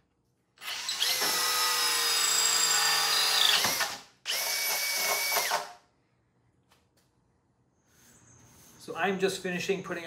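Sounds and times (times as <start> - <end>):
power drill cutting wood: 0.6 - 5.8.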